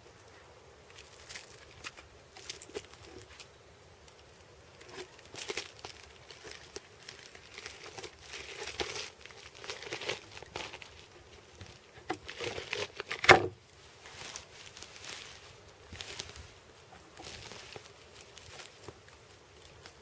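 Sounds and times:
boots scraping on tree bark: 4.8s - 19.0s.

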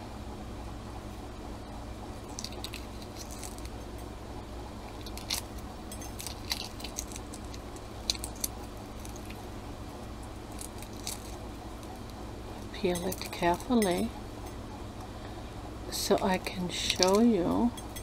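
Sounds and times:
low hum: 0.0s - 18.0s
egg shell cracking: 2.2s - 4.0s, 4.8s - 13.8s.

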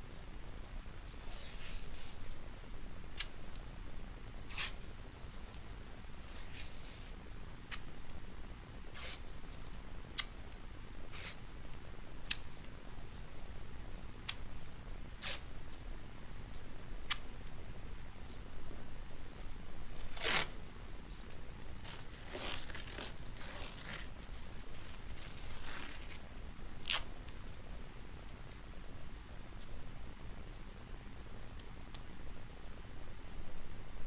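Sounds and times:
tape unspooling and tearing: 20.0s - 20.5s, 26.8s - 27.1s.

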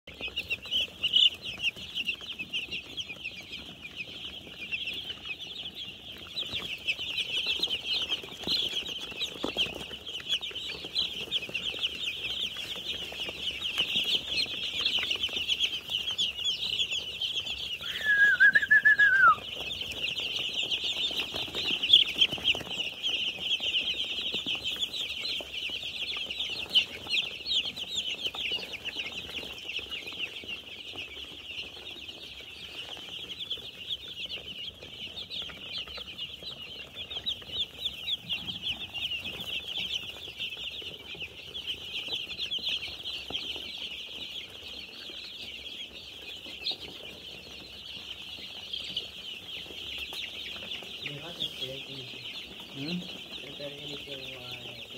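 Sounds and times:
chicks peeping: 0.0s - 54.9s.

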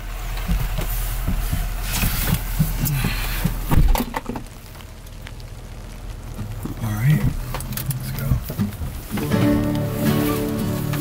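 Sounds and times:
seat rustling: 0.2s - 4.5s
truck door shutting: 1.9s - 4.4s.

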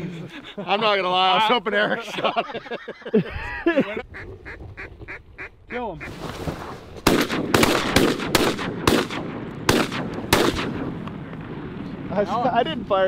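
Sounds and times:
shotguns firing: 7.0s - 11.8s.

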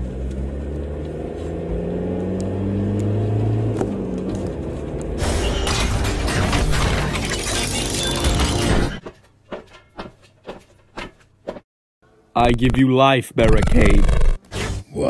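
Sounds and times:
dense noisy sound effect: 13.4s - 14.4s.

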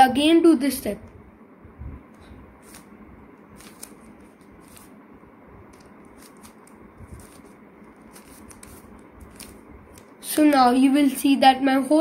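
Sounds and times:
puzzle cube clicking as turned: 3.6s - 4.8s, 5.7s - 7.5s.

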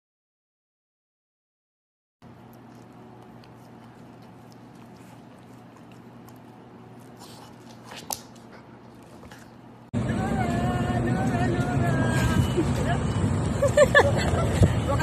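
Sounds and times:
dog teeth gnawing rubber toy: 2.2s - 9.5s
steady low hum: 2.2s - 15.0s.

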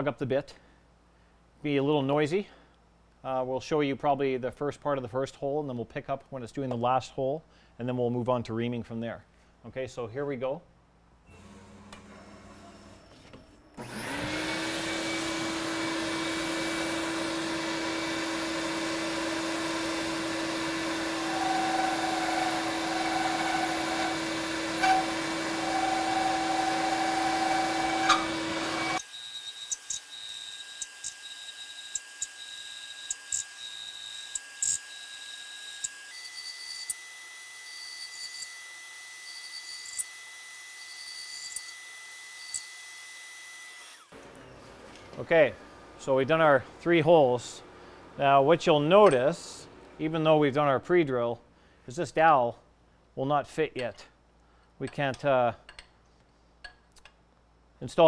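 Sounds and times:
shop vacuum running: 11.3s - 29.1s, 43.8s - 50.7s
machine running with high whine: 13.8s - 29.1s.

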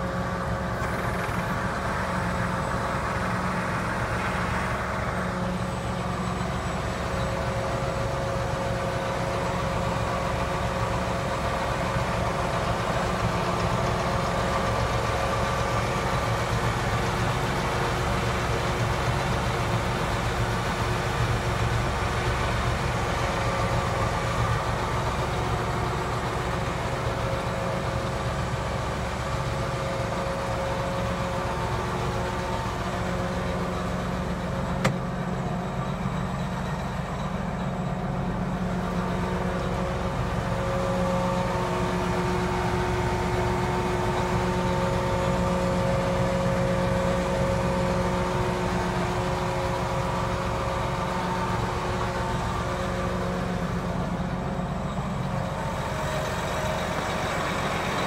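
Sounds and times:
diesel tractor engine idling: 0.0s - 58.0s.

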